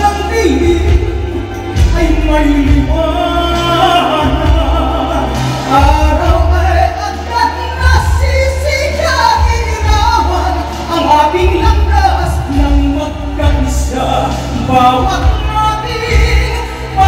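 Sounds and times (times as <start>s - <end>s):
amplified instrumental music: 0.0s - 17.0s
woman singing into microphone: 14.6s - 17.0s.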